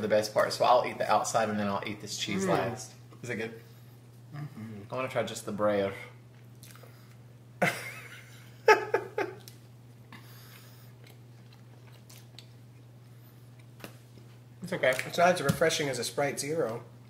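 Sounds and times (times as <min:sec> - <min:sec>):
short voiced sound: 0:02.3 - 0:02.8
person chewing pastry: 0:09.4 - 0:14.4.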